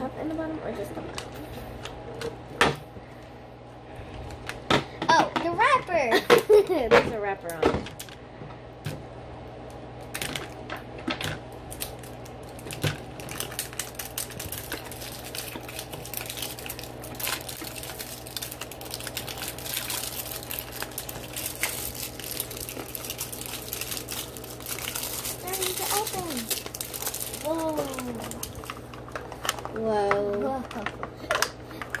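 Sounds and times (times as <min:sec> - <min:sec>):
plastic wrapper crinkling: 0:10.0 - 0:32.0.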